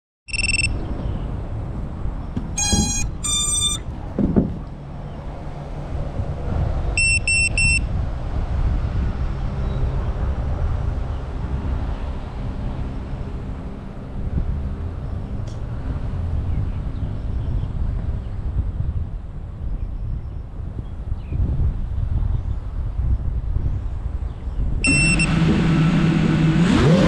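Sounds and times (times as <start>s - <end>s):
drone electronic beeps: 0.3s - 0.8s, 2.6s - 3.9s, 7.0s - 7.8s, 24.8s - 27.0s
multi-tone chimes: 2.6s - 3.8s.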